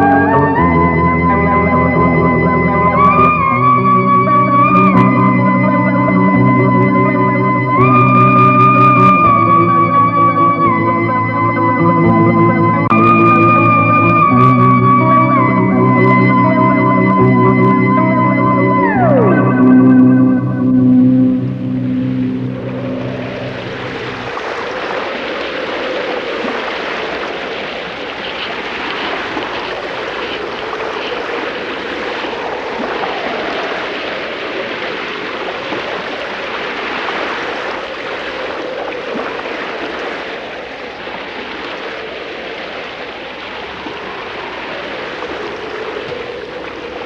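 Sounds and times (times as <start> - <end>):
sea surf: 0.0 - 47.0
wind: 20.0 - 47.0.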